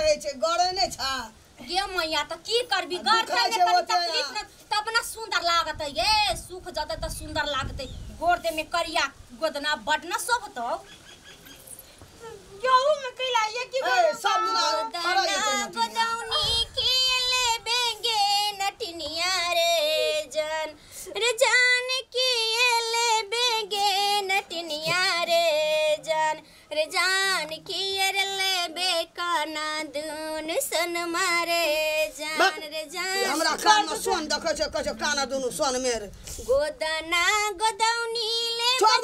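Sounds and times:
woman singing folk song: 12.6s - 33.5s, 36.4s - 39.0s.

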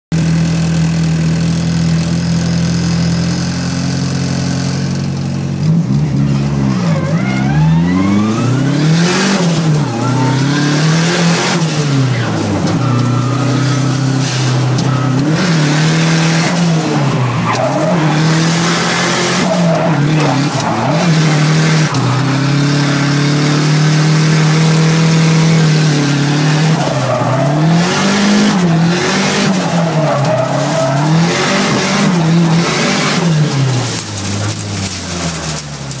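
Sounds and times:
car engine revving: 0.2s - 36.0s
tyre squeal: 6.7s - 22.8s, 24.6s - 35.8s.

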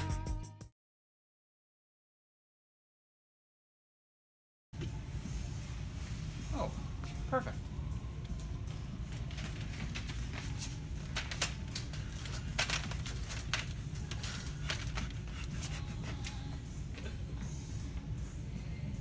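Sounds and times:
crinkling plastic packaging: 9.4s - 15.4s.

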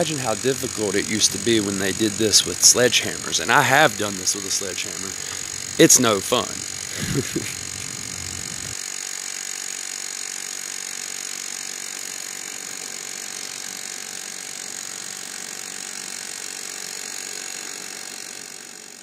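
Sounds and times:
rotary hammer hammering: 0.0s - 8.8s.

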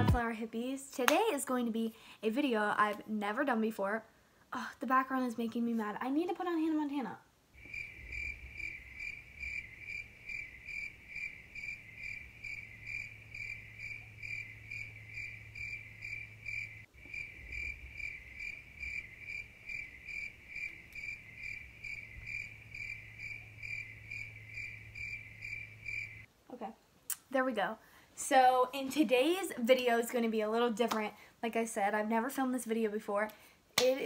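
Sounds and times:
low steady hum: 0.0s - 0.8s
person talking: 0.0s - 3.9s
cricket chirping: 7.6s - 26.3s.

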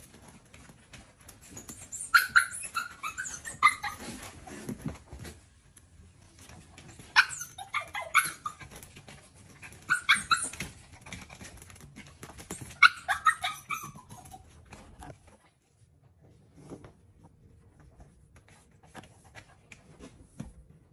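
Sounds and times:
puppy yipping and whining: 1.4s - 4.4s, 6.8s - 11.4s, 12.4s - 14.8s.

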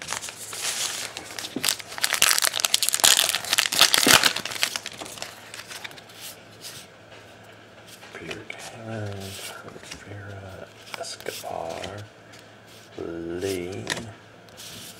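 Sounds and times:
card pack wrapper crinkling and tearing: 0.0s - 6.0s
cards rustling: 0.0s - 6.8s, 7.9s - 14.1s.

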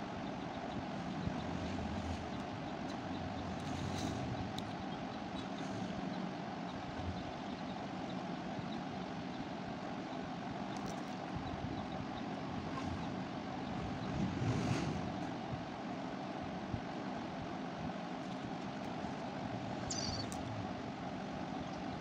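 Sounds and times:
high chirp: 19.8s - 20.4s.

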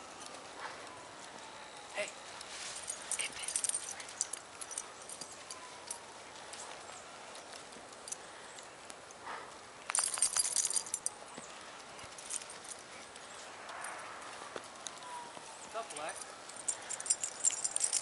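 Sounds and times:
footsteps crunching in snow: 2.4s - 3.0s.

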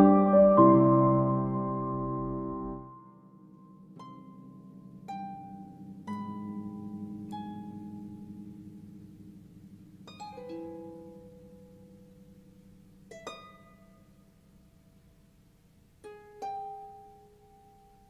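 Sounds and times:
harp notes plucked: 0.0s - 3.0s.

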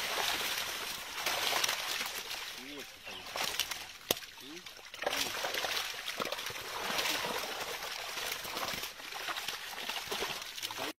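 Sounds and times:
water trickling and splashing: 0.0s - 11.0s
small slaps and drips: 3.4s - 10.9s.

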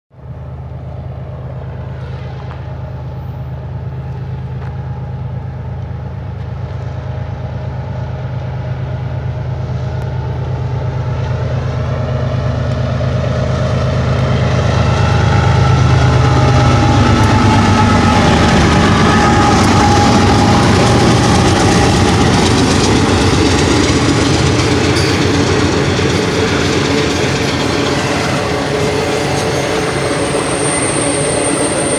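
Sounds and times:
diesel locomotive engine drone: 0.1s - 31.9s
steel wheels clattering on rails: 16.0s - 31.9s.

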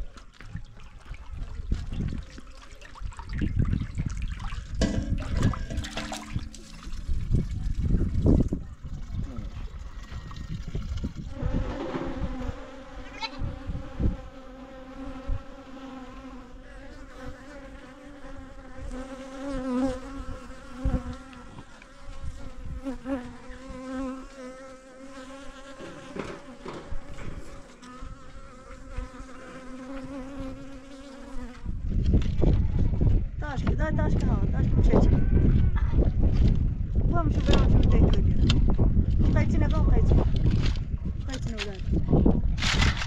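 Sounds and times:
low thumps: 4.8s - 8.5s
honeybees buzzing: 11.3s - 31.6s.

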